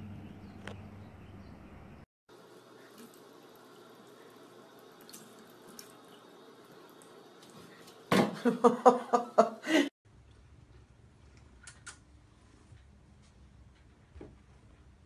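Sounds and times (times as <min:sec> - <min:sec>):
person laughing: 0:08.3 - 0:09.9.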